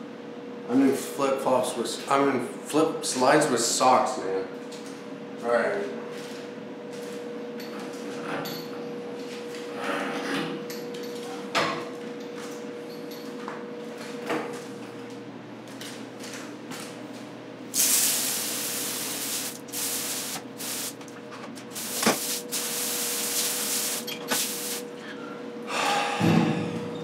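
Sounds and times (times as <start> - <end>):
hose sprayer hissing: 17.8 - 21.0, 21.7 - 24.8.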